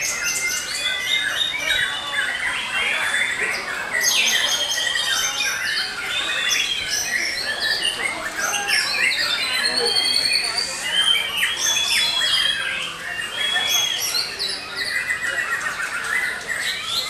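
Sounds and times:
birds singing whistles and trills: 0.0s - 17.0s.

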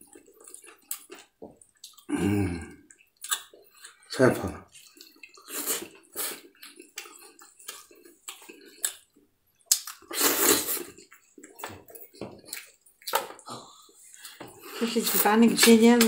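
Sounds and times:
wet smacking and sucking: 2.9s - 4.0s, 4.8s - 16.0s.

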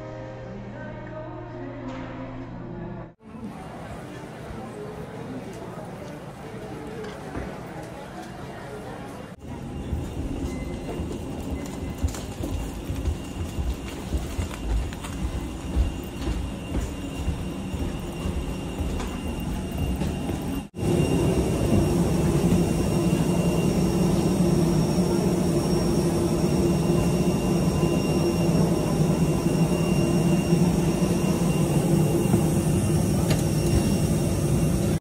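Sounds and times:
aircraft machinery humming: 3.3s - 35.0s
faint high whine: 9.5s - 35.0s.

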